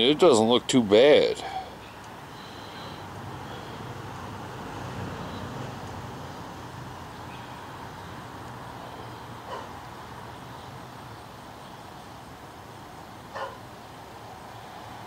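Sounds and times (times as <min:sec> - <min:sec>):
background hum and hiss: 0:00.0 - 0:15.0
dog bark: 0:09.5 - 0:09.7, 0:13.3 - 0:13.6.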